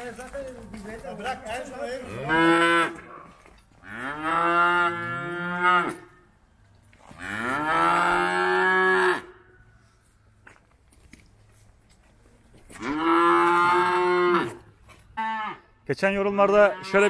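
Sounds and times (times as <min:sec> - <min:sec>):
calves mooing: 0:02.0 - 0:06.1, 0:07.1 - 0:09.3, 0:12.8 - 0:15.7, 0:16.5 - 0:17.0.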